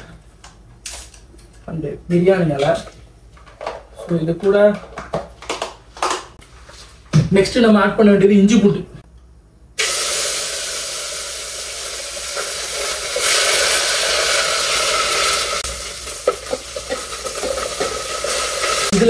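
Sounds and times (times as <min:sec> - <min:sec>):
paste sizzling in oil: 0:09.8 - 0:19.0.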